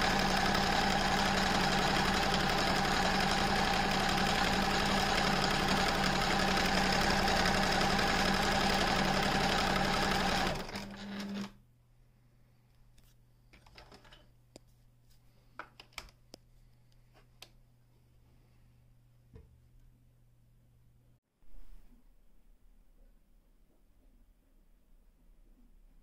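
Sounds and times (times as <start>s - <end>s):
sewing machine stitching: 0.0s - 11.6s.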